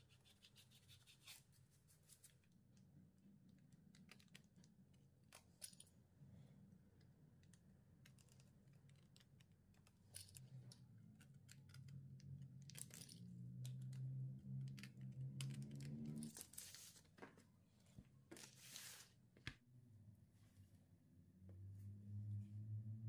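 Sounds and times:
low hum: 0:19.7 - 0:23.0.

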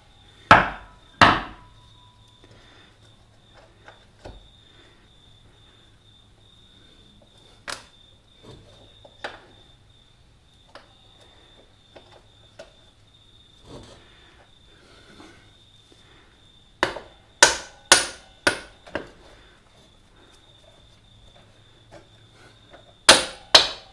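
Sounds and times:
sharp knocks: 0:00.5 - 0:01.7.

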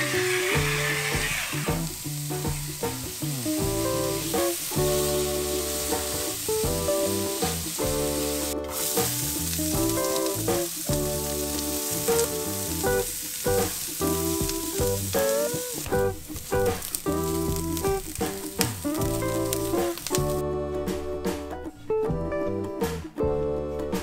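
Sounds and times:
food sizzling in frying pan: 0:00.0 - 0:20.4
background music with chords: 0:01.7 - 0:24.0
spatula stirring: 0:03.6 - 0:20.4.

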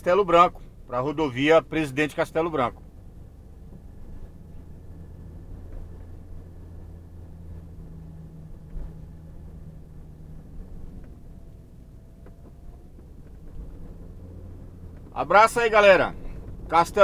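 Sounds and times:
car engine and tyre drone: 0:00.0 - 0:17.0.

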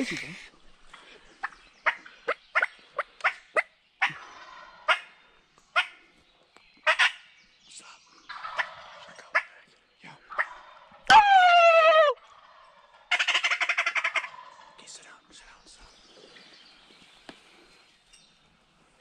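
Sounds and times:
wild turkeys calling: 0:00.8 - 0:06.2, 0:06.8 - 0:07.5, 0:08.3 - 0:15.6.

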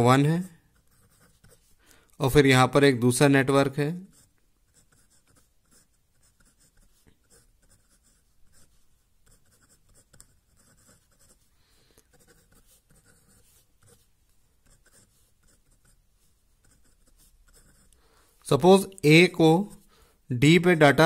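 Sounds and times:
pen scratching on paper: 0:00.0 - 0:01.8, 0:03.6 - 0:11.5, 0:12.1 - 0:18.0.

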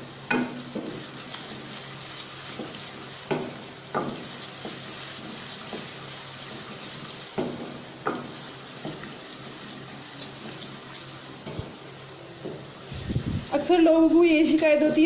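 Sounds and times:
onions sizzling in hot oil: 0:00.0 - 0:15.0
spatula scraping and knocking pan: 0:00.3 - 0:11.8.

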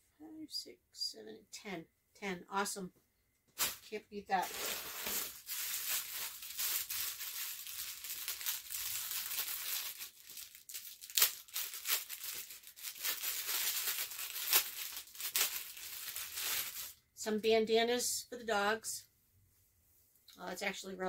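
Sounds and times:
plastic packaging crinkling: 0:03.6 - 0:17.0.

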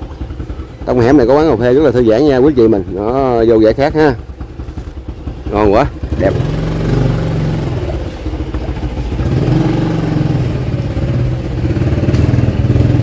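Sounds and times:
small motorbike engine revving: 0:05.6 - 0:13.0.

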